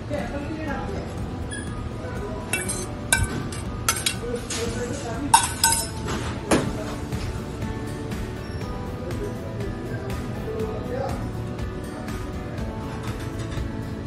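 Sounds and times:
metal tongs clinking on plate: 2.5s - 4.7s, 5.3s - 6.2s.

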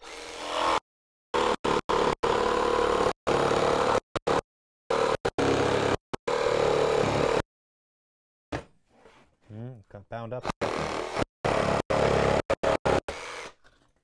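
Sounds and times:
jigsaw cutting plywood: 0.0s - 0.8s, 1.4s - 7.4s, 10.5s - 13.9s.

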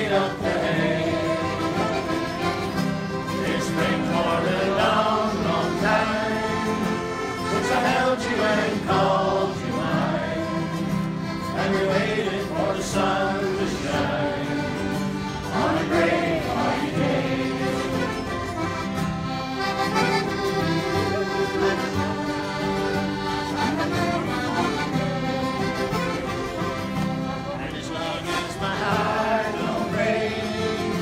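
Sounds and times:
group of voices singing: 0.0s - 2.3s, 3.2s - 18.4s, 27.8s - 31.0s
acoustic guitar: 0.0s - 31.0s
button accordion: 0.0s - 31.0s.

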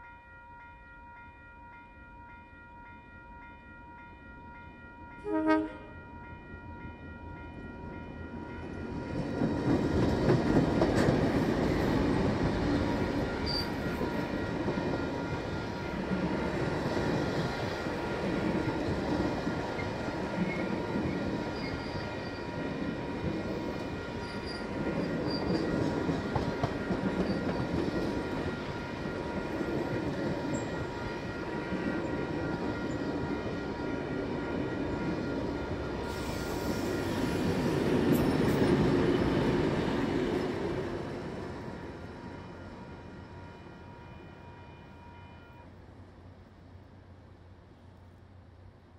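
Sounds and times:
crossing warning bells ringing: 0.0s - 45.8s
diesel locomotive engines: 3.3s - 48.9s
train wheels clattering on rails: 8.6s - 41.6s.

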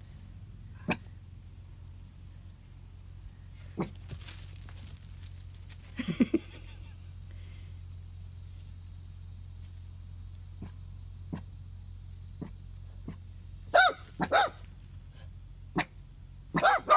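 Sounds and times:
puppy barking: 13.7s - 14.6s, 16.5s - 16.9s.

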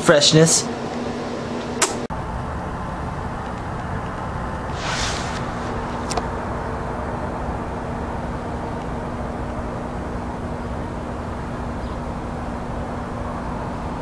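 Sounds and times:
constant low hum: 0.0s - 14.0s
low outdoor rumble: 0.7s - 14.0s.

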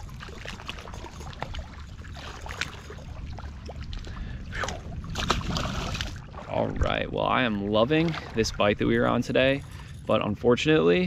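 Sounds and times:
water lapping and trickling: 0.0s - 11.0s
fish splashing into water: 4.6s - 6.4s.

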